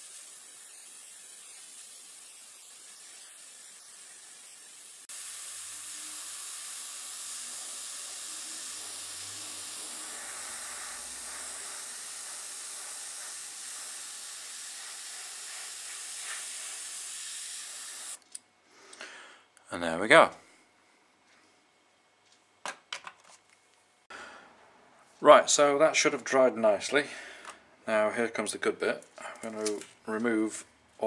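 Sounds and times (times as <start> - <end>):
airbrush spraying paint: 0.0 - 18.2.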